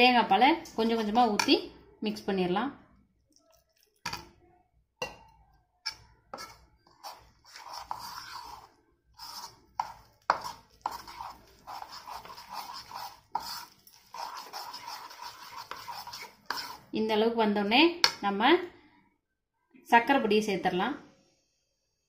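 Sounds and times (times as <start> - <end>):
spoon scraping and clinking bowl: 5.9 - 16.9.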